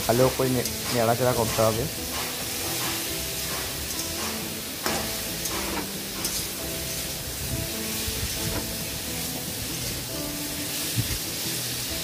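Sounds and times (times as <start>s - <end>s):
vegetables sizzling in hot oil: 0.0s - 12.0s
wooden spatula scraping pan: 0.7s - 4.6s.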